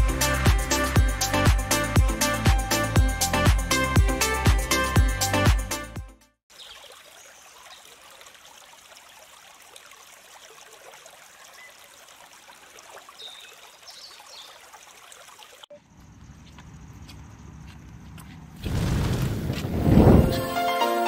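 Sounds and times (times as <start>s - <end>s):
stream running over stones: 6.5s - 15.7s.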